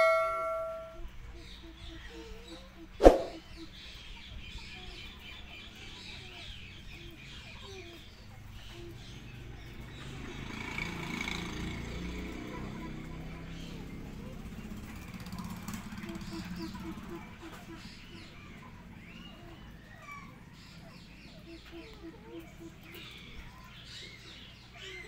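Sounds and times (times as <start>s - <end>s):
metallic clang: 0.0s - 1.0s
faint bird calls: 0.0s - 10.1s, 12.6s - 25.0s
sharp knock: 3.0s - 3.4s.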